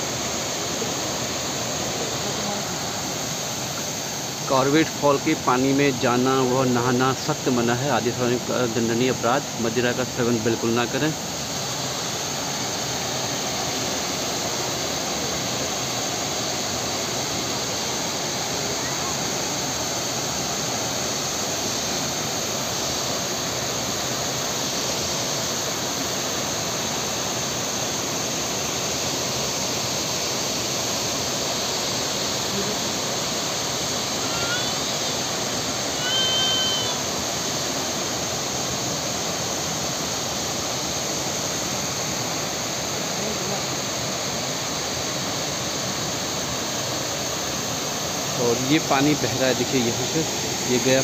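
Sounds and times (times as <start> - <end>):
waterfall rushing and splashing: 0.0 - 51.0
short high call: 36.0 - 37.1.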